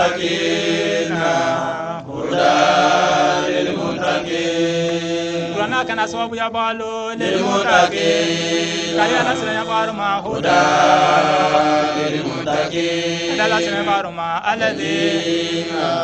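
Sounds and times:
man chanting: 0:05.5 - 0:16.0.

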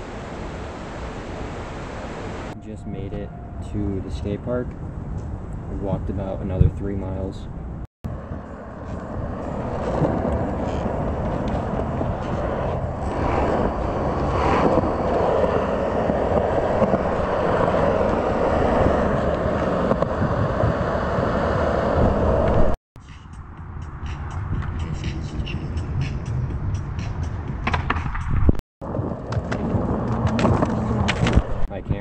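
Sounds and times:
skateboard wheels rolling on concrete: 0:08.1 - 0:22.8, 0:27.1 - 0:32.0.

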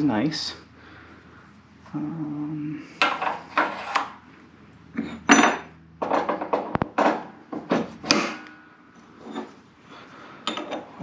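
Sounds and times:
metal clinks and clanks: 0:10.4 - 0:11.0.

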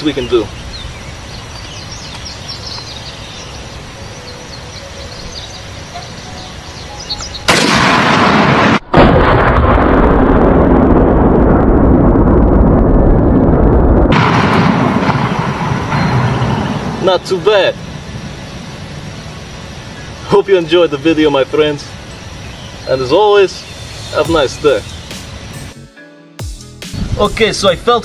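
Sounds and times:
faint high chirps: 0:00.2 - 0:07.5
rifle shot blast: 0:07.5 - 0:10.5, 0:14.1 - 0:16.4
loud explosion rumble: 0:07.5 - 0:18.4.

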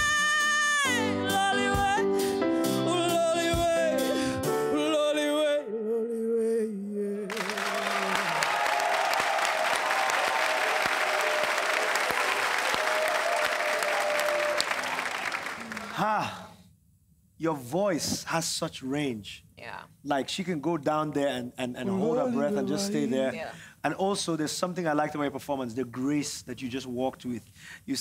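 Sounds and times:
woman singing: 0:00.0 - 0:03.9, 0:21.9 - 0:23.6
karaoke backing track: 0:00.0 - 0:05.8
audience applause: 0:07.3 - 0:16.4.

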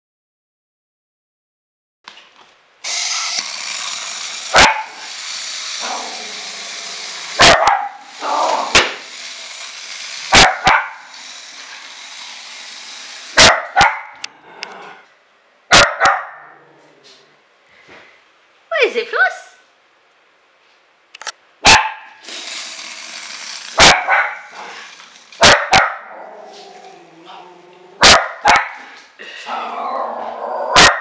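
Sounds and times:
small dog barking: 0:04.5 - 0:05.0, 0:07.4 - 0:08.0, 0:10.3 - 0:11.0, 0:13.4 - 0:14.2, 0:15.7 - 0:16.6, 0:21.6 - 0:22.2, 0:23.8 - 0:24.5, 0:25.4 - 0:26.2, 0:28.0 - 0:28.9, 0:30.7 - 0:31.0.

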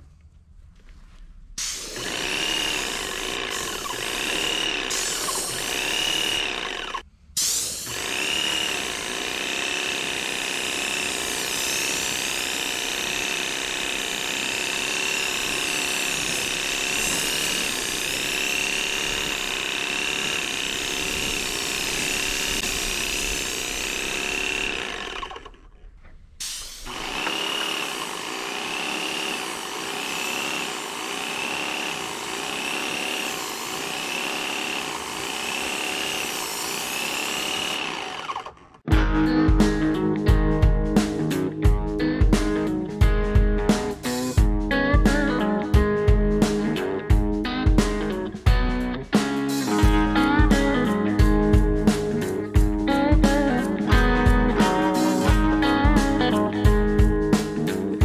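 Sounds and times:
paint sprayer pump pulsing: 0:01.6 - 0:07.0, 0:07.7 - 0:25.8, 0:26.4 - 0:38.9.

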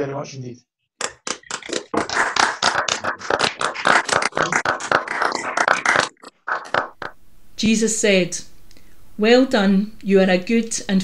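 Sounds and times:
hands clapping: 0:01.0 - 0:07.2.

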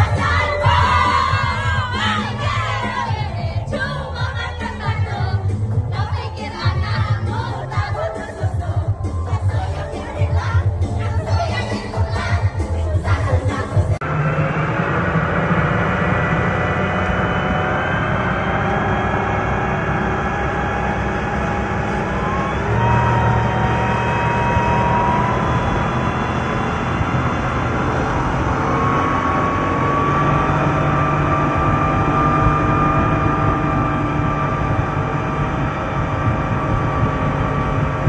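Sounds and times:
boat engine drone: 0:00.0 - 0:38.0.

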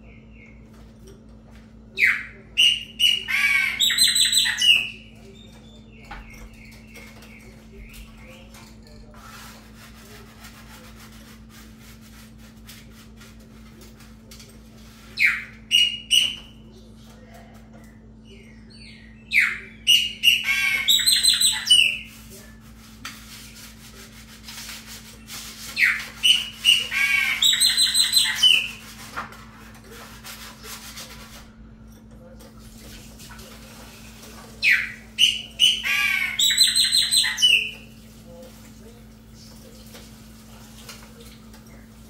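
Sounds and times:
steady low hum: 0:00.0 - 0:36.4
blackbird singing: 0:02.0 - 0:08.6, 0:18.2 - 0:22.1, 0:25.8 - 0:28.8, 0:34.6 - 0:37.8.

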